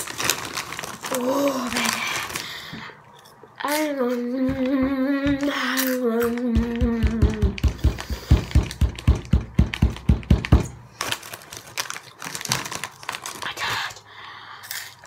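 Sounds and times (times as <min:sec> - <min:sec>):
foil snack bag crinkling: 0:00.0 - 0:04.0, 0:09.6 - 0:15.0
rapid thumps: 0:06.5 - 0:10.8.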